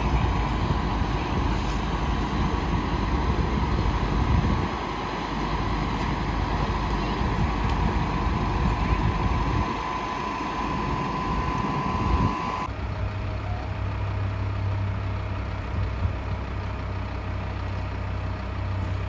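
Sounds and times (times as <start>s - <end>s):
high whine: 0.0s - 12.7s
fire truck engines idling: 0.0s - 19.0s.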